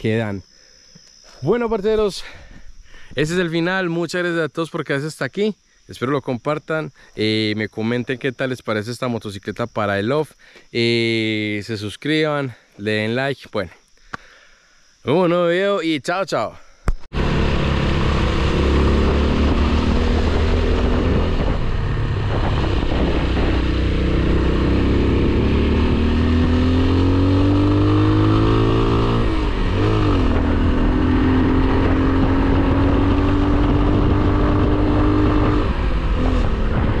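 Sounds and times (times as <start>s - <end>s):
wind and road noise: 16.9s - 37.0s.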